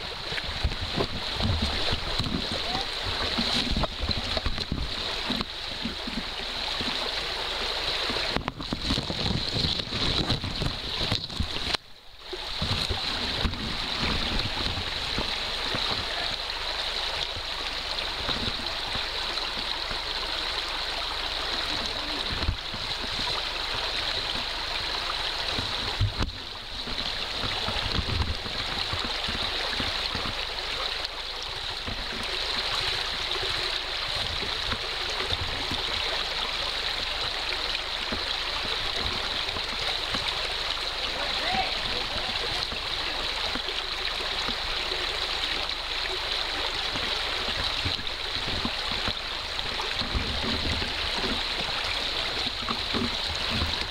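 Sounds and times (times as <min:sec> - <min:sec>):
stream running over rocks: 0:00.0 - 0:53.9.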